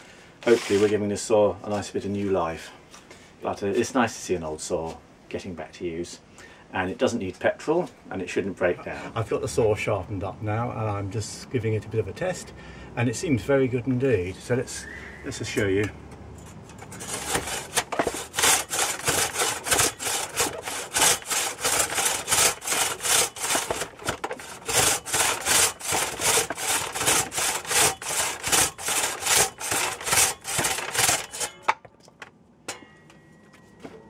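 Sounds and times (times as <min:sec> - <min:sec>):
saw cutting through log: 0:16.9 - 0:31.7.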